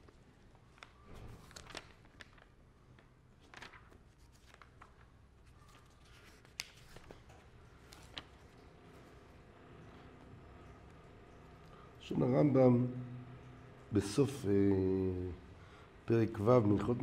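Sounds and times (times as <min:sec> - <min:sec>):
faint clicks and rustles: 0:00.0 - 0:12.0.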